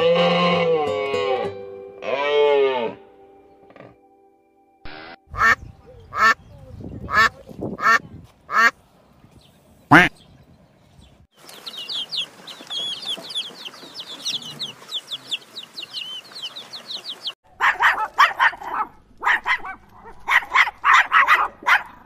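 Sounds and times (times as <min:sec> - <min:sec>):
chicks peeping: 0:11.4 - 0:17.4
dog barking: 0:17.5 - 0:22.0.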